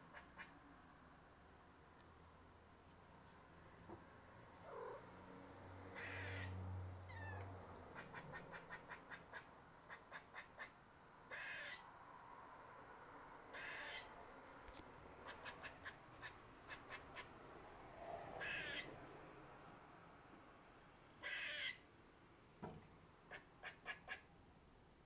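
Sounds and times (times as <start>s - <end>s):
cat meowing: 7.1s - 7.5s, 13.5s - 14.0s, 18.4s - 18.9s, 21.2s - 21.8s.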